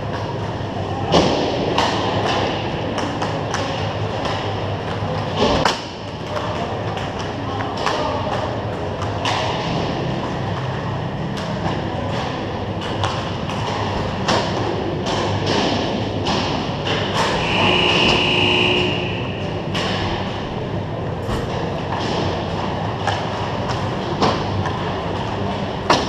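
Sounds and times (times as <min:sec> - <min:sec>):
arena hum: 0:17.2 - 0:21.9.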